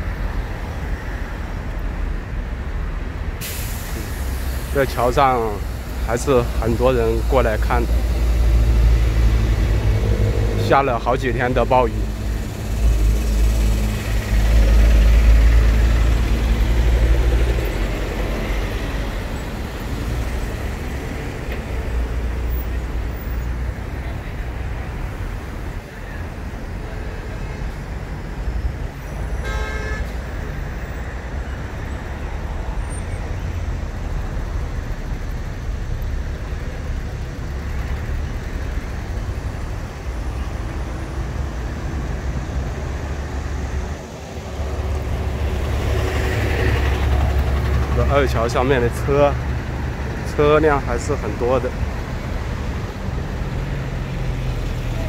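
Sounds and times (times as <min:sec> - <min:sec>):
road traffic passing: 0:00.0 - 0:55.0
vehicle horn toot: 0:29.4 - 0:30.2.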